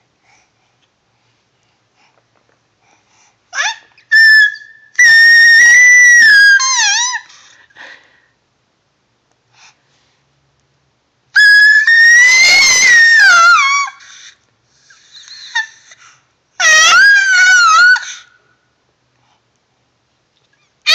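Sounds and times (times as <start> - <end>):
baby shrieking: 3.5 - 7.4, 11.4 - 14.2, 16.6 - 18.3.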